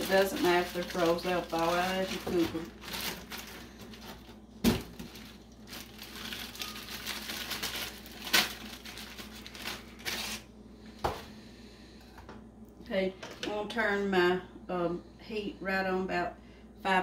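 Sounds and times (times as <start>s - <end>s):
plastic bag crinkling: 0.0s - 10.5s.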